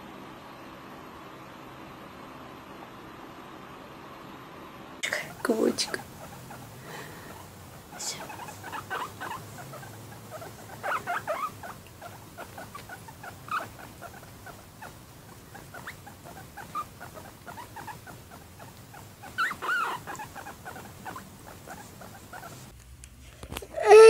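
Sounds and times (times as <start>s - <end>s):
guinea pig squeaking and chirping: 5.2s - 22.7s.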